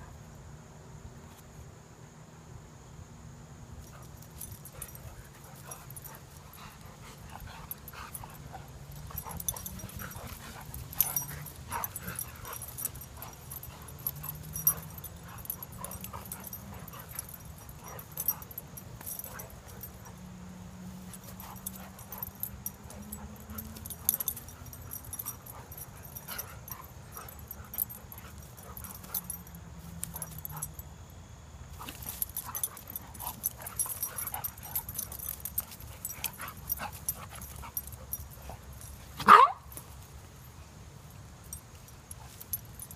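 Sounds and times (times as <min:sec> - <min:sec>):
dogs growling: 0:05.6 - 0:20.2.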